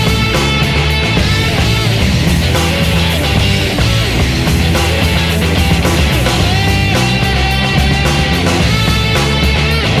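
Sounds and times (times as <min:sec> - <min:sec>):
loud rock music with guitar: 0:00.0 - 0:10.0.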